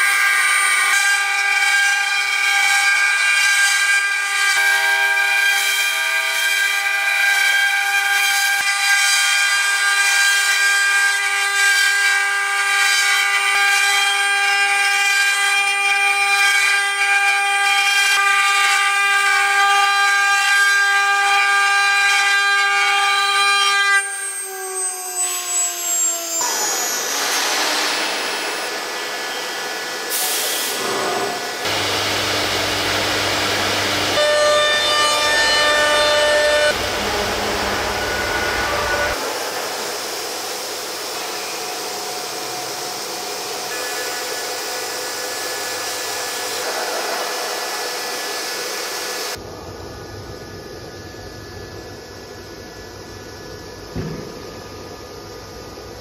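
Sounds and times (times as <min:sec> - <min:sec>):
wood router spindles whining: 0:00.0 - 0:49.4
rough noisy machine sound: 0:24.1 - 0:56.0.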